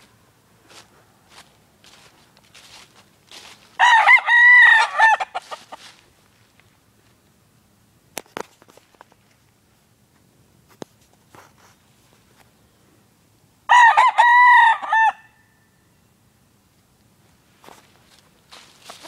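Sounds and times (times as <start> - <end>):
rustles in dry leaves: 0.0 - 7.3, 17.2 - 19.0
rooster crowing: 3.8 - 5.8, 13.7 - 15.6.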